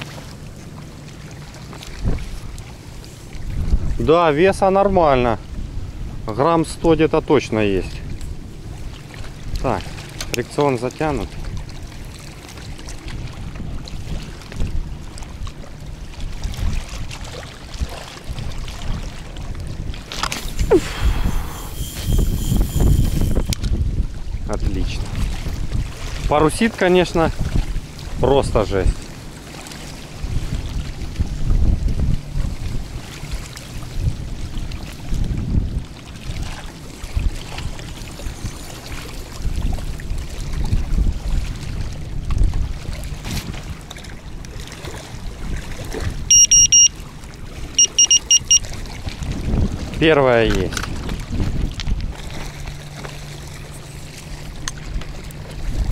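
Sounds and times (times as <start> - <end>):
waves lapping on stony shore: 0.0 - 55.9
gusty wind on microphone: 2.0 - 2.5, 3.3 - 6.3, 16.2 - 26.4, 27.2 - 29.0, 30.2 - 43.8, 48.7 - 52.5, 54.2 - 55.9.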